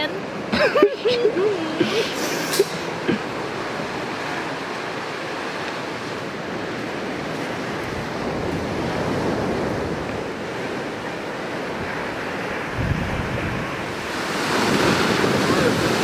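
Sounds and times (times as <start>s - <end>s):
waves breaking on beach: 0.0s - 16.0s
wind on microphone: 5.9s - 16.0s.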